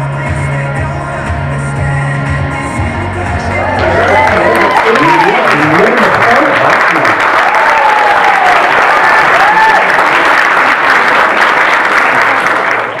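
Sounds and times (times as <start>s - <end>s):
cheering calls: 3.4s - 13.0s
crowd applauding: 3.5s - 13.0s.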